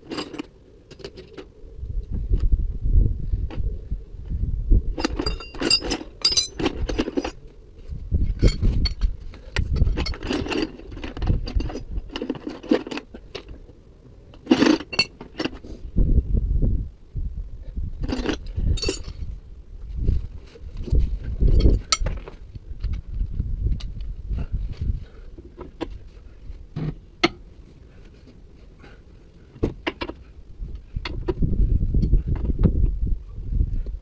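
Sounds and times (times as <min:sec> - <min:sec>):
metal tools clinking and clattering: 0:05.0 - 0:07.4, 0:08.3 - 0:13.6, 0:14.4 - 0:15.6, 0:18.0 - 0:19.2, 0:21.4 - 0:22.4.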